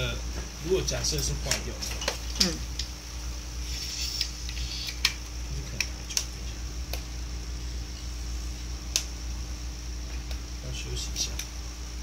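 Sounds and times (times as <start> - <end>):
air pump humming: 0.0 - 12.0.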